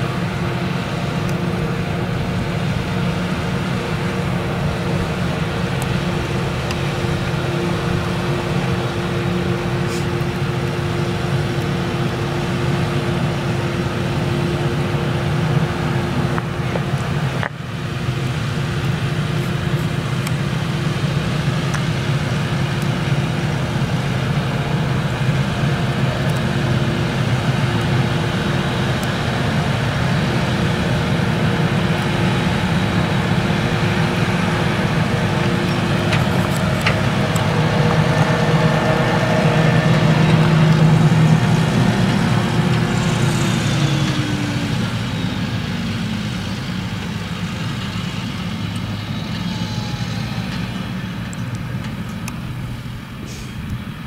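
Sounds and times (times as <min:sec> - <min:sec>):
tractor engine: 0:00.0 - 0:54.0
harvester chopping maize: 0:04.6 - 0:11.5.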